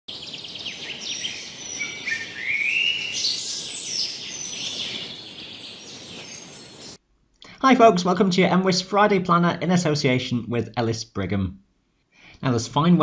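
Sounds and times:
birds chirping and whistling: 0.1s - 7.0s.

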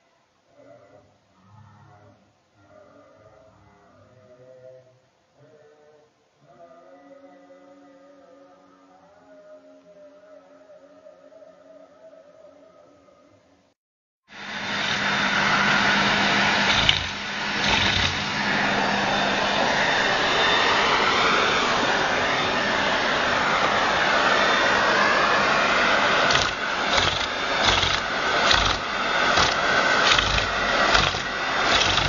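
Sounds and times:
vacuum cleaner running: 14.3s - 32.0s.

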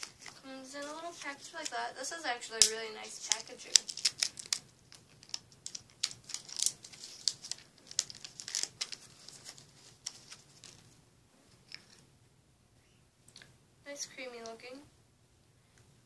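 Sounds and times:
packaging wrap crinkling: 0.0s - 1.8s, 2.6s - 10.9s.

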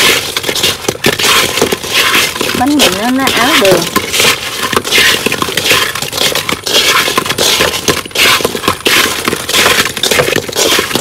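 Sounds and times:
rice balls scraping in metal wok: 0.0s - 11.0s.

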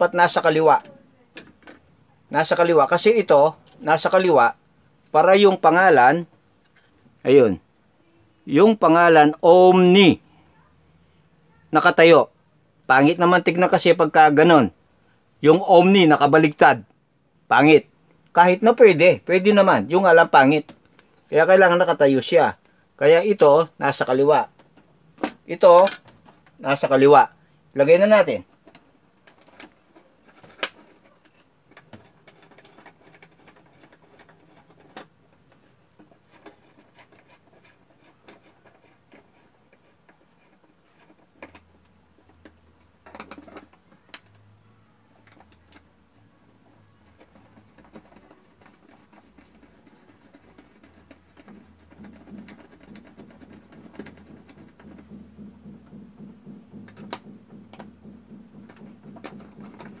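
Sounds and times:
plastic wall switch clicking and scraping: 28.6s - 44.4s, 47.0s - 60.0s.

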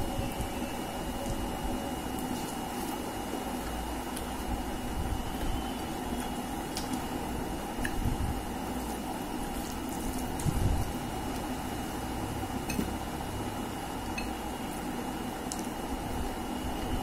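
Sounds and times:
low hum with high whine: 0.0s - 17.0s
wet squishing of food by hand: 5.3s - 11.9s.

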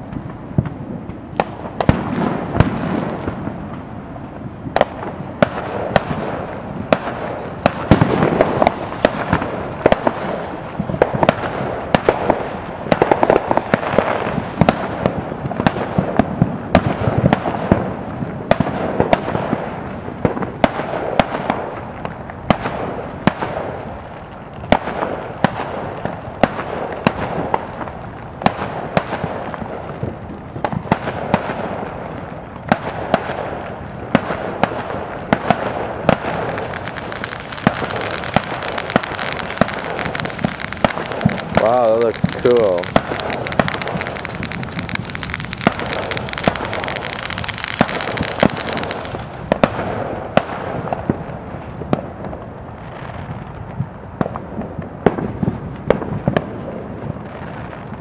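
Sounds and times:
fireworks popping and banging: 0.0s - 58.0s
rumble of distant blasts: 33.0s - 52.6s.

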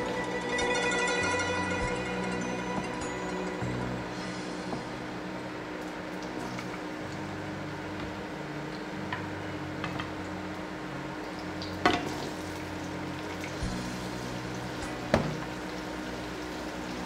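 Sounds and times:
garlic sizzling in hot oil: 11.2s - 17.0s.

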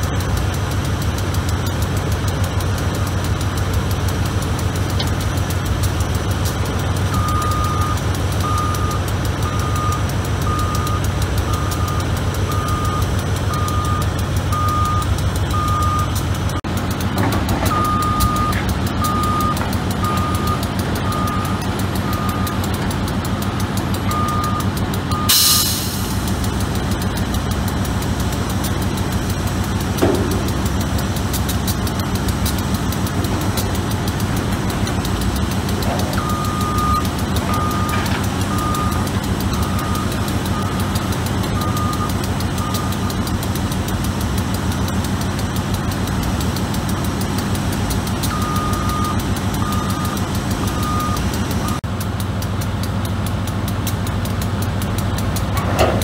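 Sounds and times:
diesel engine running: 0.0s - 56.0s
reversing alarm beeping: 7.0s - 16.8s, 17.6s - 25.9s, 34.8s - 43.4s, 48.2s - 51.8s
loud hiss: 25.3s - 26.4s.

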